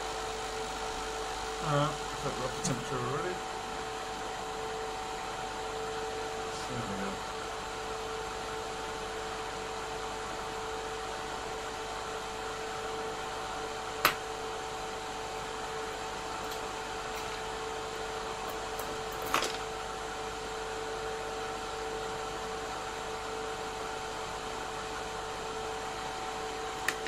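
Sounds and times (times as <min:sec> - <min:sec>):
hot air blower hissing: 0:00.0 - 0:19.1
extractor fan hum: 0:00.0 - 0:27.0.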